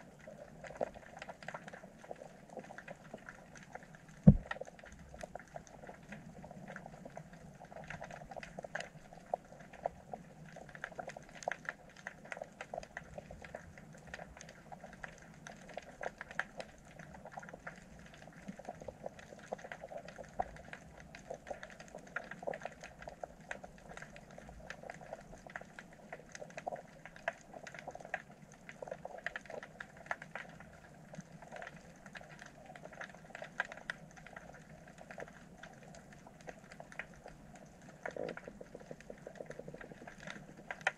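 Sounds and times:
underwater clicks and pops: 0:04.2 - 0:04.6.

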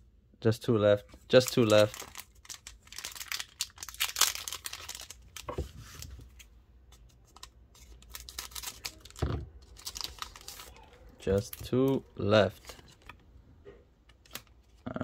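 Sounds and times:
foil wrapper crinkling: 0:01.3 - 0:06.0, 0:07.3 - 0:11.7.

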